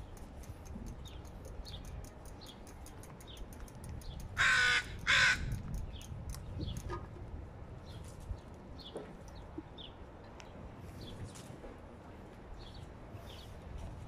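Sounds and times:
bird calling loudly: 4.4s - 5.5s.

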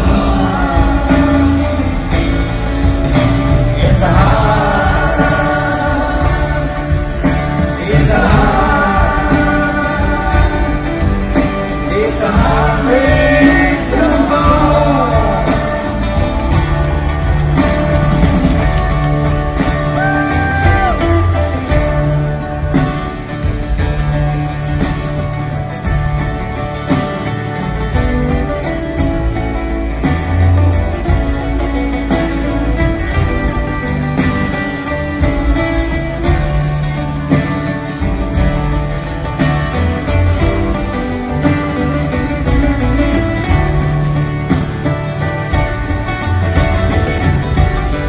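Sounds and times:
drums: 0.0s - 48.0s
strummed acoustic guitars: 0.0s - 48.0s
upright bass: 0.0s - 48.0s.

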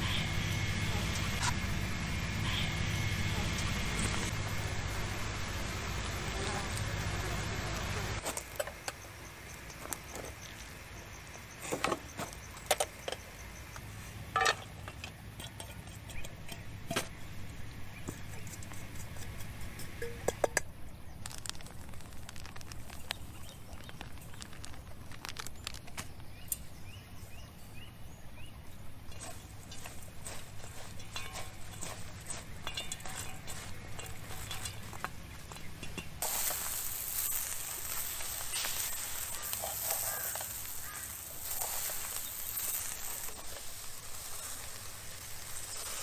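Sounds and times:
low outdoor background: 0.0s - 46.0s
metal skewers and cookware clinking: 14.4s - 17.2s, 29.1s - 46.0s.

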